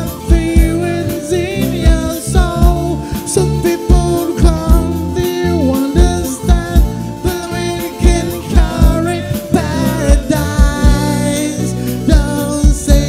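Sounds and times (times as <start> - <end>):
bass guitar: 0.0 - 13.0
electric guitar: 0.0 - 13.0
keyboard: 0.0 - 13.0
man singing: 0.0 - 13.0
kick drum beat: 10.1 - 11.2.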